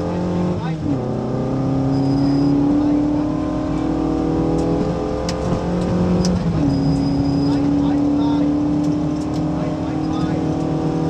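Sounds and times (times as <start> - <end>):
rally car engine accelerating: 0.0 - 11.0.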